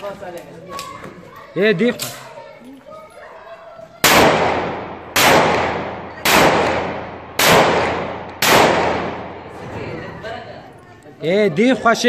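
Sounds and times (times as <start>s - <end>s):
pistol shots echoing: 4.0s - 9.5s.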